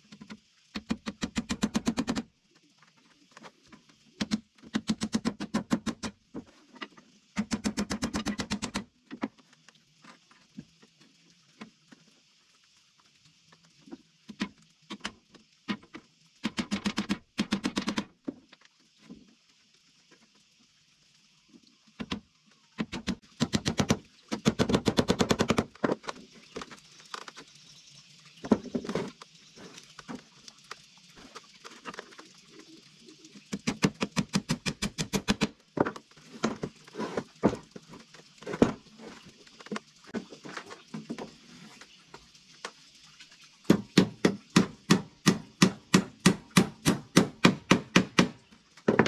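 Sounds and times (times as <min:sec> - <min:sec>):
rapid sharp knocks on wood: 0:22.8 - 0:25.7, 0:33.6 - 0:35.5, 0:43.7 - 0:49.0.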